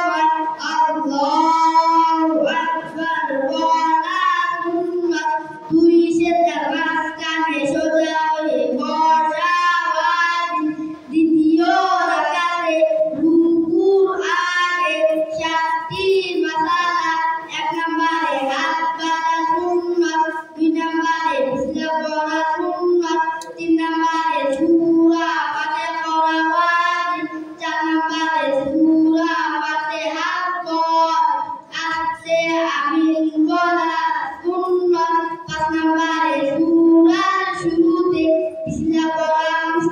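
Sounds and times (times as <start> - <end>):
boys singing unaccompanied: 0.0 - 39.9.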